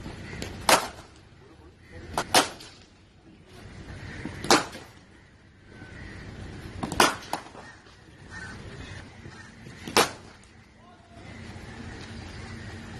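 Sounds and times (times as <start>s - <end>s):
cricket bat striking ball: 6.8s - 7.6s, 9.8s - 10.3s.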